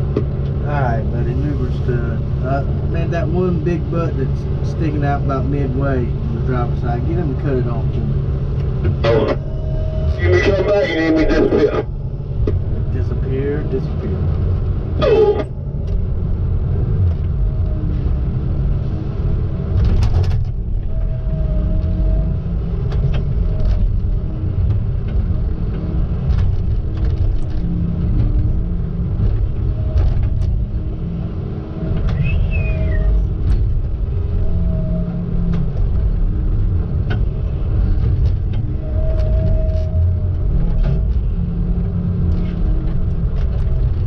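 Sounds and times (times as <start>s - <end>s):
diesel engine rumbling: 0.0s - 44.0s.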